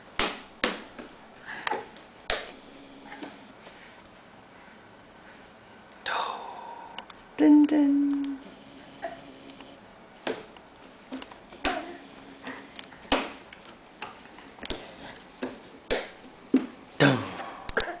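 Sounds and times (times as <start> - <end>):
palms slapping on wooden floor: 0.1 - 2.6, 10.2 - 11.9, 12.5 - 16.8.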